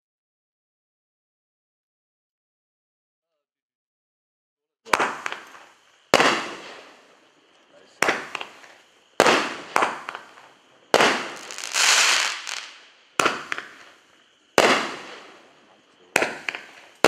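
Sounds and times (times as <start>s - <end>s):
fireworks hissing: 4.9s - 17.0s
fireworks sharp reports: 4.9s - 17.0s.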